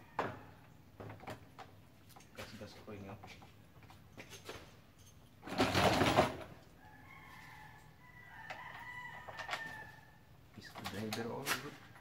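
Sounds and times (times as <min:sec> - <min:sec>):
rooster crowing: 0:06.8 - 0:10.2.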